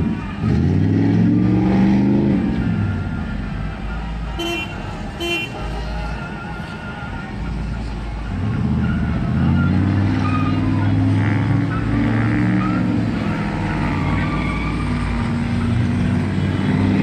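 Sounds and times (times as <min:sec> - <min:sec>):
car engines revving: 0:00.0 - 0:17.0
car horn toots: 0:04.3 - 0:06.4.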